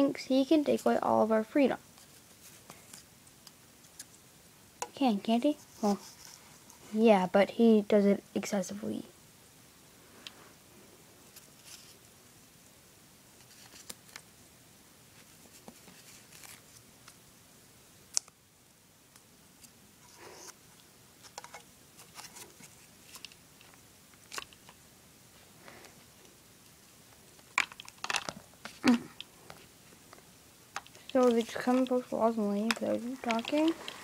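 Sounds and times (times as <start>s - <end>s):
paper rustling: 13.4s - 14.2s, 15.2s - 17.2s, 21.2s - 23.4s, 30.8s - 34.0s
plastic toy figures tapping and clicking: 27.5s - 29.3s, 30.8s - 34.0s.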